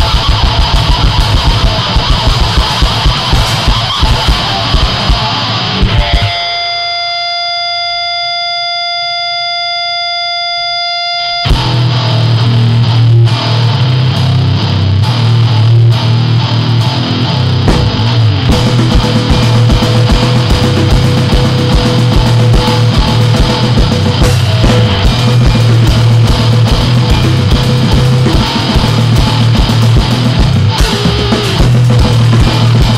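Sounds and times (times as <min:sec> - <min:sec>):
rapid drumming: 0:00.0 - 0:06.4, 0:17.5 - 0:32.9
heavy bass: 0:00.0 - 0:06.5, 0:11.4 - 0:32.9
distorted guitar: 0:00.0 - 0:32.9.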